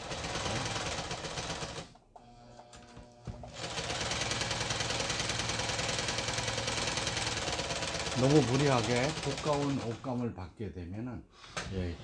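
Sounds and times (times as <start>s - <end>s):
sewing machine running: 0.0s - 1.9s, 3.4s - 10.2s.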